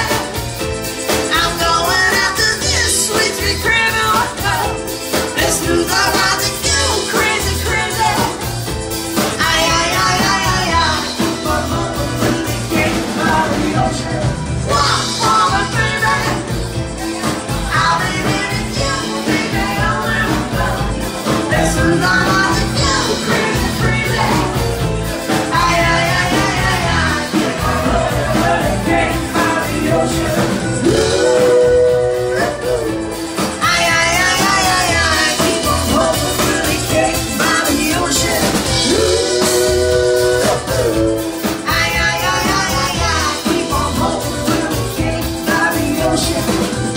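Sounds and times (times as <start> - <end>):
drum kit: 0.0 - 46.9
person singing: 0.0 - 46.9.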